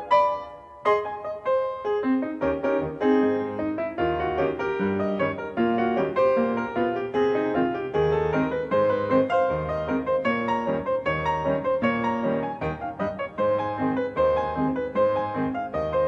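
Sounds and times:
piano piece: 0:00.0 - 0:16.0.

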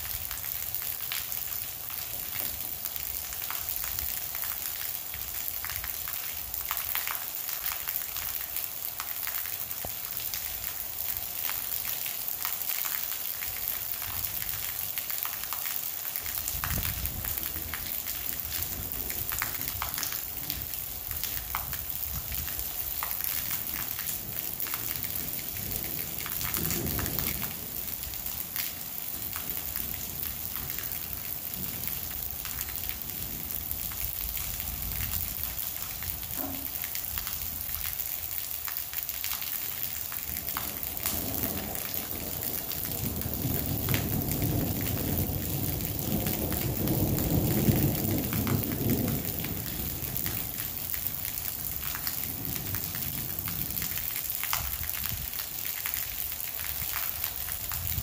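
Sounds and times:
heavy rain: 0:00.0 - 0:58.0
raindrops ticking: 0:00.0 - 0:58.0
thunder rumble: 0:16.4 - 0:22.8, 0:23.4 - 0:35.6, 0:40.2 - 0:54.0.

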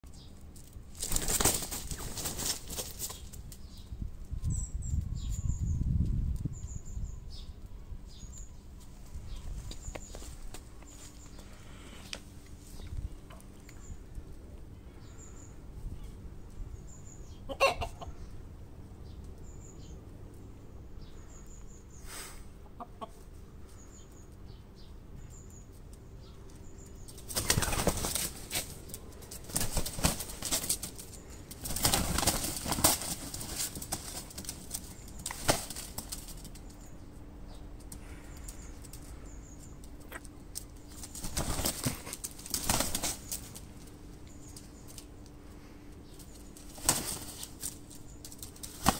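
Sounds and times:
wings beating: 0:00.9 - 0:03.4, 0:27.1 - 0:36.9, 0:39.8 - 0:45.1, 0:46.1 - 0:48.9.

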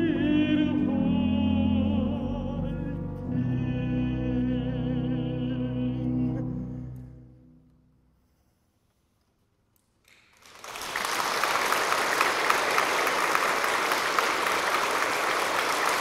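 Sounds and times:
audience applause: 0:10.1 - 0:16.0.

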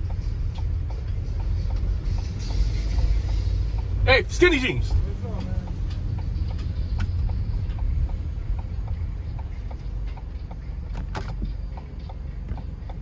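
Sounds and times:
road and engine rumble: 0:00.0 - 0:13.0
turn signal ticking: 0:00.0 - 0:13.0.

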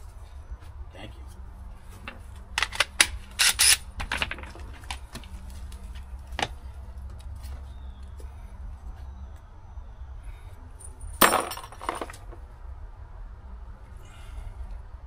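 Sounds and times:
stones clacking together: 0:11.2 - 0:12.4.

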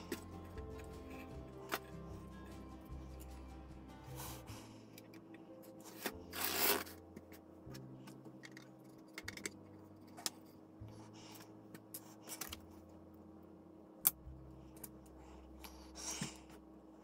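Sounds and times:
rustling scrape: 0:05.8 - 0:07.0.

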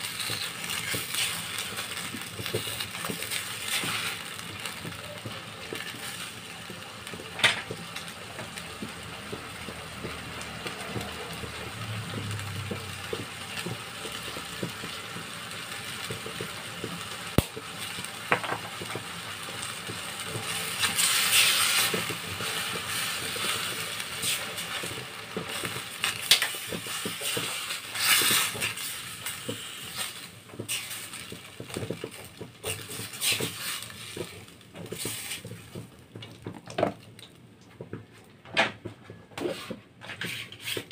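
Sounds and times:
spatula scraping a steel wok: 0:32.6 - 0:34.2, 0:39.4 - 0:40.9.

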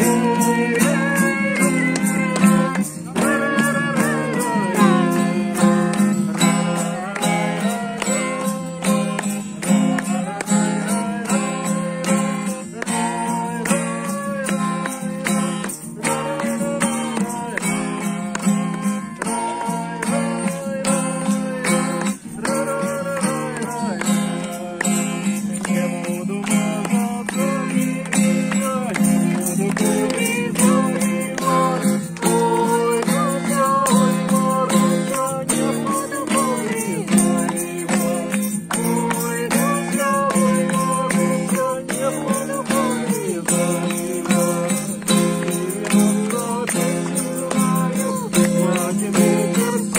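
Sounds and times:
group of people singing: 0:00.0 - 0:49.9
strummed acoustic guitar: 0:00.0 - 0:49.9.

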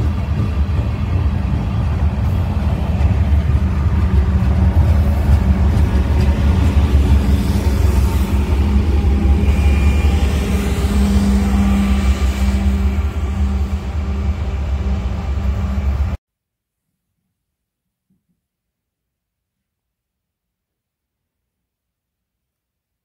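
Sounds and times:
diesel locomotive engine rumble: 0:00.0 - 0:16.2
train wheels on rails: 0:00.0 - 0:16.2.

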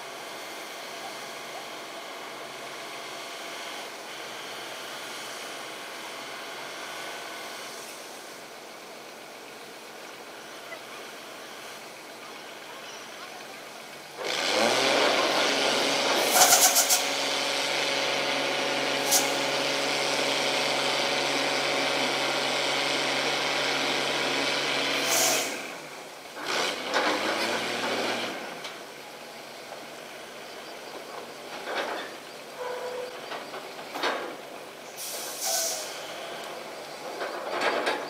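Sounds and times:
heavy engine running: 0:00.0 - 0:38.0
short hissing clicks: 0:16.2 - 0:17.1, 0:19.0 - 0:19.4, 0:25.0 - 0:25.5, 0:35.0 - 0:36.5.

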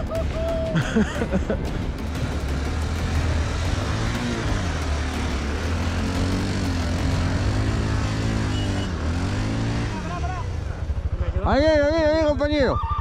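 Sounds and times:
vehicle engine running: 0:00.0 - 0:12.6.

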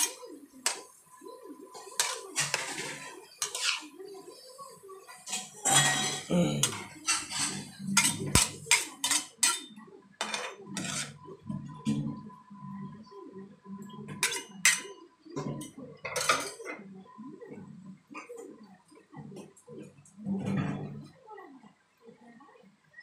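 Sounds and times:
metal utensil clanking on pan: 0:01.8 - 0:03.9, 0:05.0 - 0:11.2.

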